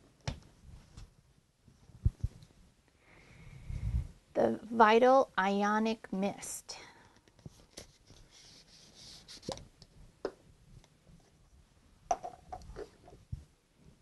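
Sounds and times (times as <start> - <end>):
plastic bottle clicks and knocks: 12.1 - 13.2.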